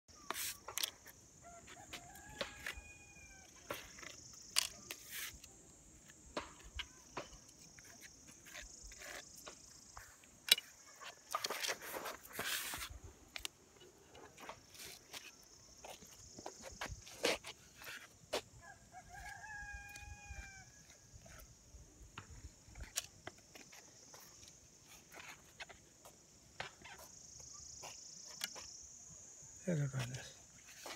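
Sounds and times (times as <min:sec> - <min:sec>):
tile sheets being handled: 0:00.2 - 0:01.0, 0:03.7 - 0:06.6, 0:11.0 - 0:13.5
trowel clicking and scraping: 0:00.2 - 0:01.1, 0:06.4 - 0:09.6.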